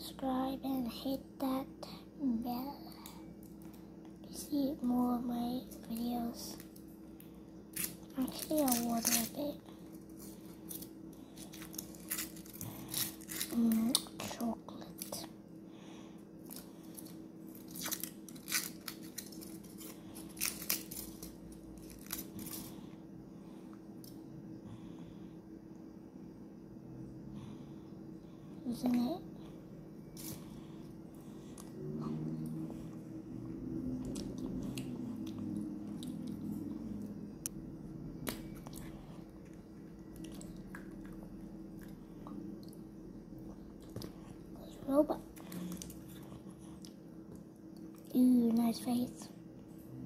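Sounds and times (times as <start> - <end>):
faint low hum: 0.0 - 50.0
foil wrapper crinkling: 7.8 - 9.4, 10.0 - 14.0, 16.9 - 22.7.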